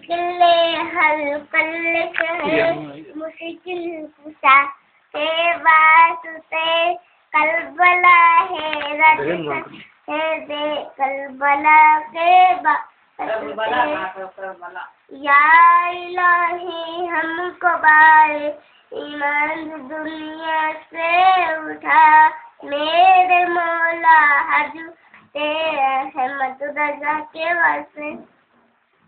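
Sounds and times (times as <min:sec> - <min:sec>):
child singing: 0:00.0 - 0:14.1, 0:15.1 - 0:28.3
breaths between phrases: 0:18.6 - 0:18.9.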